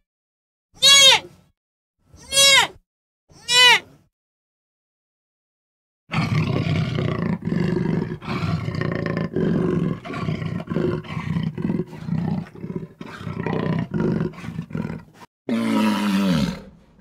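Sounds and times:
high bleating call: 0.8 - 1.3, 3.4 - 3.9
tiger growling and roaring: 6.1 - 17.0.

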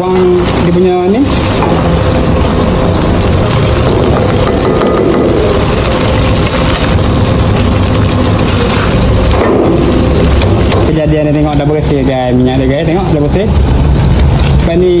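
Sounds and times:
gas burner running: 0.0 - 15.0
oil frying and bubbling: 0.0 - 15.0.

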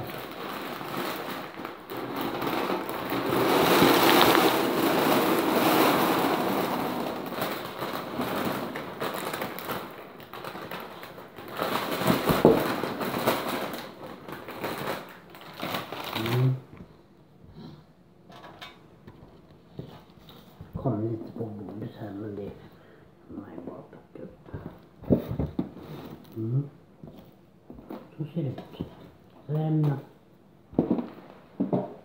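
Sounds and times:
cereal clatter: 0.0 - 16.6
cereal pouring into metal tin: 0.0 - 16.6
plastic bag rustling: 0.0 - 16.8, 24.5 - 29.8, 30.7 - 32.0.

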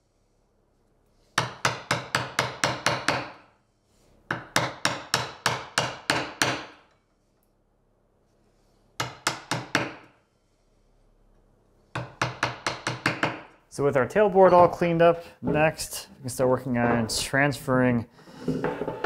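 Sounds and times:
mallet striking chisel: 1.4 - 3.4, 4.3 - 6.9, 9.0 - 10.1, 12.0 - 13.5.

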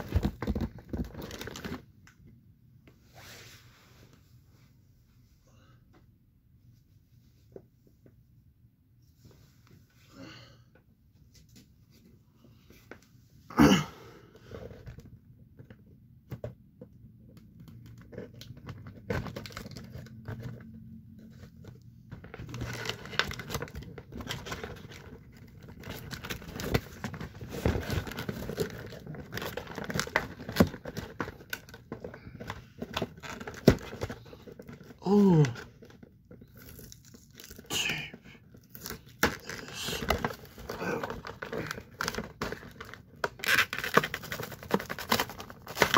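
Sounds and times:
cardboard and plastic packaging tearing: 0.0 - 1.8, 17.8 - 20.6, 22.2 - 45.9.

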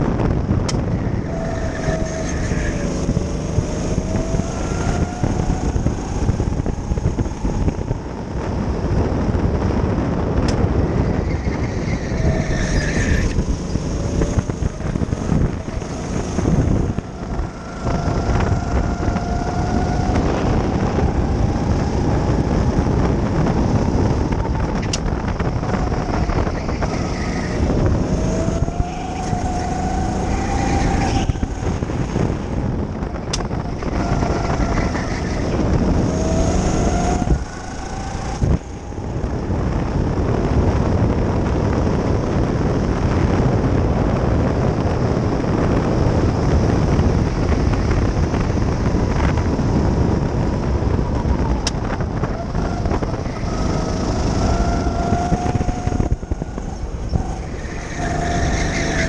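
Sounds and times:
dense rumble: 0.0 - 59.0
go-kart engine revving: 0.0 - 59.0.

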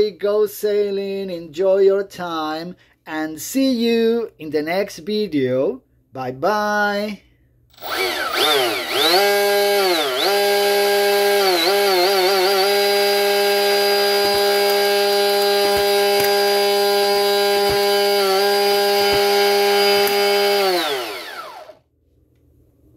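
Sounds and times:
electric motor whining: 7.8 - 21.8.

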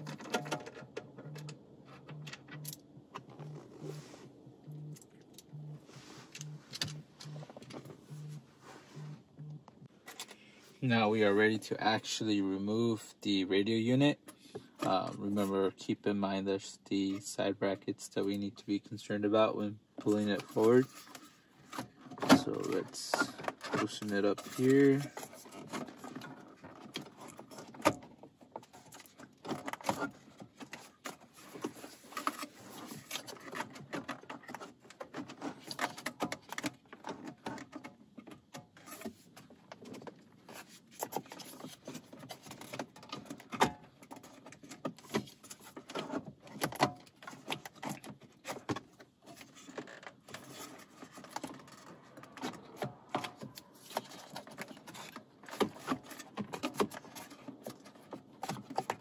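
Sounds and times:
plastic clicks and rattles of radio unit: 0.0 - 3.8, 19.4 - 59.0.

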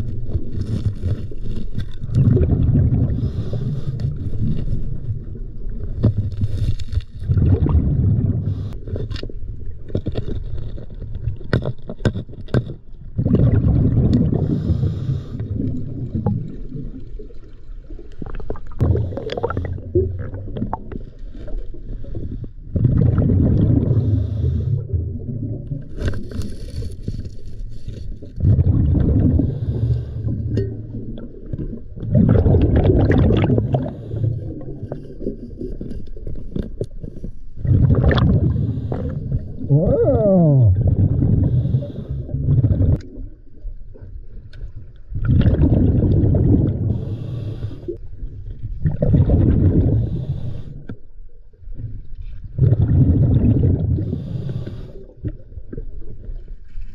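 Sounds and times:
exhaled bubbles underwater: 0.0 - 26.8, 28.1 - 56.8
regulator inhalation: 46.9 - 48.0.

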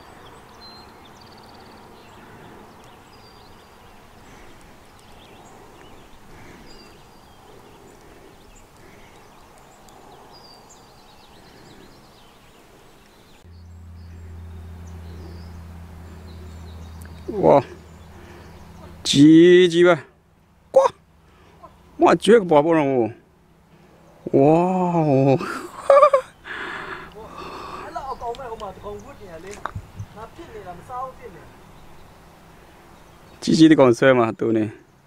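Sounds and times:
bird chirping: 0.0 - 22.1, 23.3 - 34.0
faint background noise: 0.0 - 35.0
steady low hum: 0.1 - 22.0.

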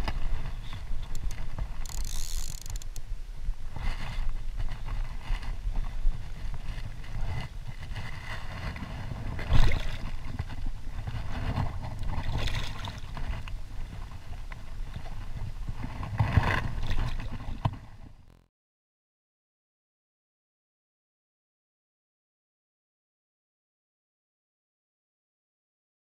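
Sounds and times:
river water splashing: 11.0 - 13.4.

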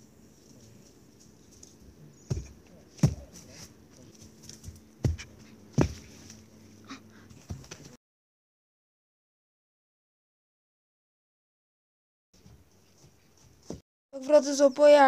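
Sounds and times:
person landing on grass thumps: 2.3 - 3.3, 4.6 - 6.3.

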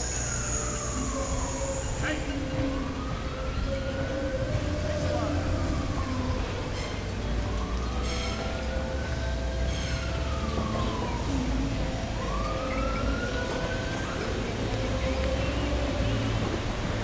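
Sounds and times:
siren wailing: 0.0 - 16.7.

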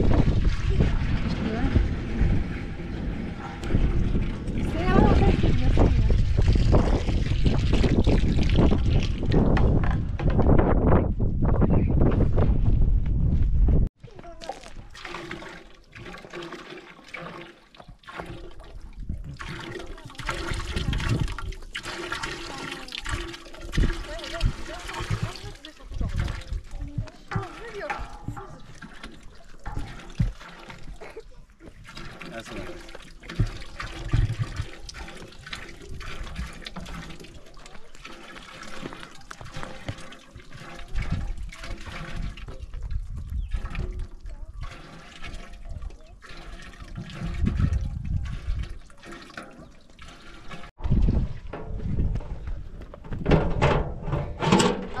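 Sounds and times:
hose water splashing into pot: 0.0 - 9.8, 14.1 - 52.6
low rumbles: 0.0 - 14.8.

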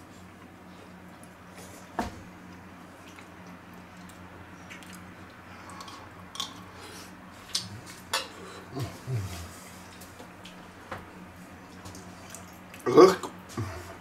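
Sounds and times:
steady low background hum: 0.0 - 14.0
quiet chewing: 0.3 - 10.6, 11.5 - 13.8
low humming voice: 4.7 - 9.9, 12.8 - 14.0.

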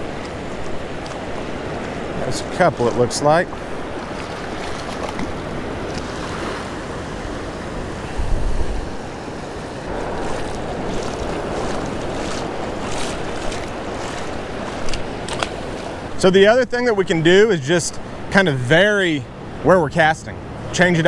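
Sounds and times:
wind on microphone: 0.0 - 16.2
surf washing in shallow water: 0.0 - 21.0.

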